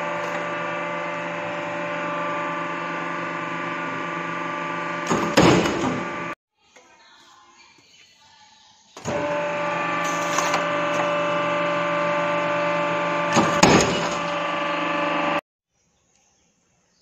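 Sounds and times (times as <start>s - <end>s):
machine hum: 0.0s - 6.4s, 9.0s - 15.4s.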